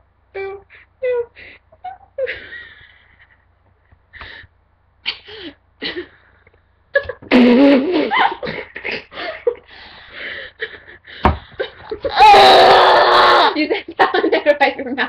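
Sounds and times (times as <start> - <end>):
dull thump: 11.2 - 11.7
girl squealing and laughing: 11.9 - 13.6.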